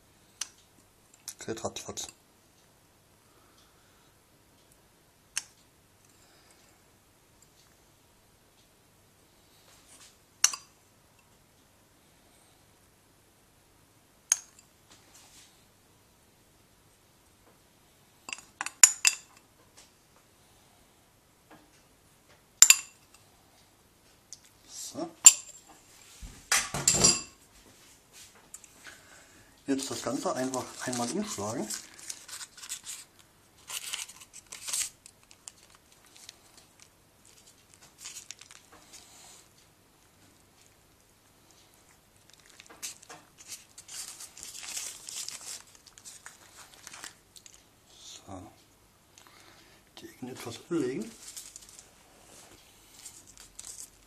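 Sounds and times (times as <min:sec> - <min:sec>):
baking paper crinkling: 0:29.6 - 0:39.3, 0:41.9 - 0:47.7, 0:50.2 - 0:54.0
crisp crackles: 0:29.7 - 0:39.3, 0:41.5 - 0:47.7, 0:50.4 - 0:54.0.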